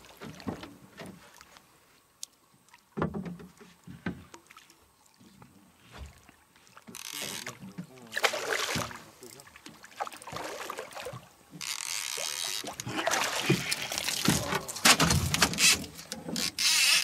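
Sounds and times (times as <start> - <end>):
fish splashing at water surface: 5.9 - 17.0.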